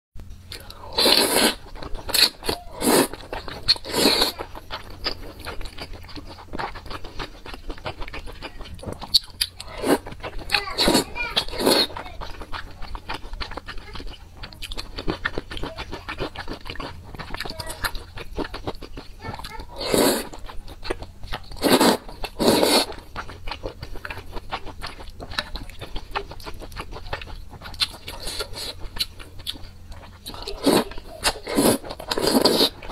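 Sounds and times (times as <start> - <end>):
wet chewing and lip smacking: 0.5 - 32.9
loud noodle slurps: 0.9 - 4.4, 9.7 - 10.1, 10.8 - 11.9, 19.8 - 20.4, 21.6 - 23.0, 30.6 - 30.8, 31.4 - 32.9.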